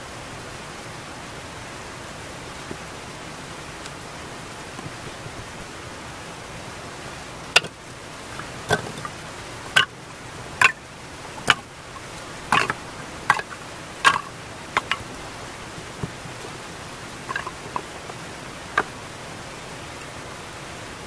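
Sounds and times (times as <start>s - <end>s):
steady hiss: 0.0s - 21.0s
logs clunking onto a pile: 7.5s - 7.8s, 8.4s - 10.0s, 10.6s - 10.8s, 11.4s - 15.2s, 15.8s - 16.6s, 17.2s - 19.0s.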